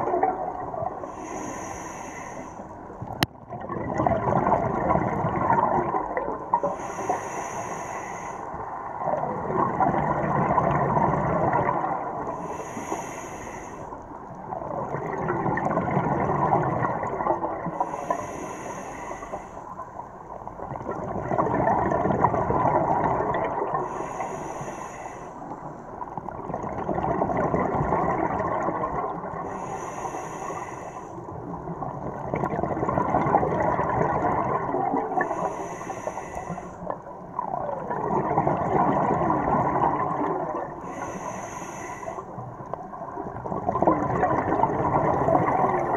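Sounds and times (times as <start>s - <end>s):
bubbling exhaled air: 0.0s - 45.9s
regulator hiss on inhale: 1.0s - 2.9s, 6.6s - 8.8s, 12.2s - 14.3s, 17.6s - 20.2s, 23.8s - 26.0s, 29.4s - 31.5s, 35.2s - 37.1s, 40.6s - 42.7s.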